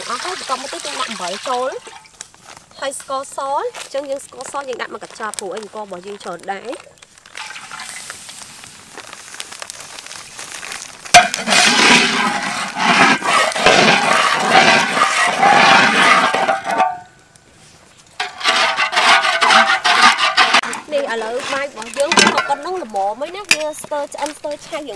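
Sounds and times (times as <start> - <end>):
metal spatula scraping wok: 11.1 - 17.1, 18.2 - 22.8.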